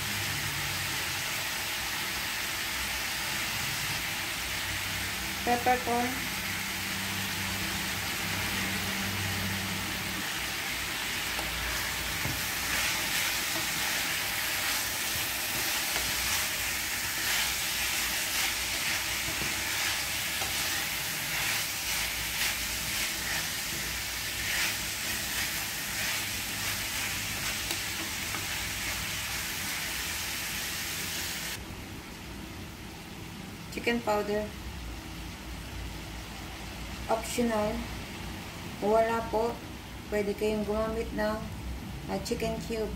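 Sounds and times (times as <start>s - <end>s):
meat and onions sizzling in a pan: 0.0s - 31.6s
wooden spatula scraping a pan: 11.1s - 29.8s.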